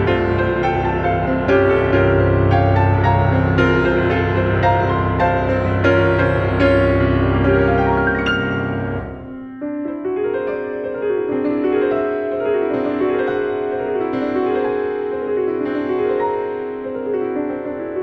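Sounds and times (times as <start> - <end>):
low musical accompaniment: 0.0 - 9.6
piano playing: 0.0 - 18.0.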